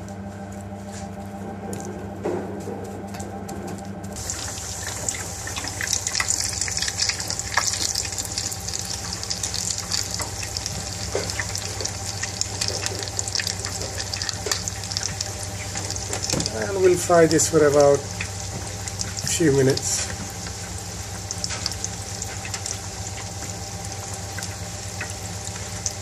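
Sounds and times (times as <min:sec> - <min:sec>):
steady low hum: 0:00.0 - 0:26.0
food sizzling in deep fryer oil: 0:04.2 - 0:26.0.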